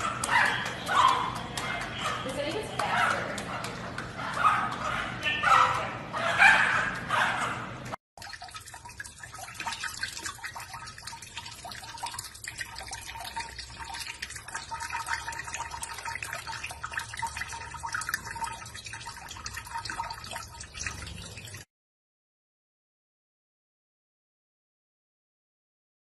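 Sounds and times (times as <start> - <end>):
tap water splashing in steel sink: 0.0 - 5.0, 8.2 - 21.6.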